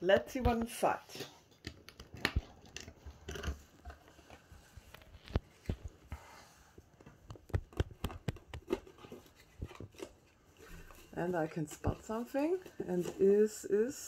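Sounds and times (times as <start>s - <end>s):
packaging crinkling and rustling: 1.5s - 6.1s, 6.8s - 13.3s
cardboard taps and clicks: 7.0s - 9.8s.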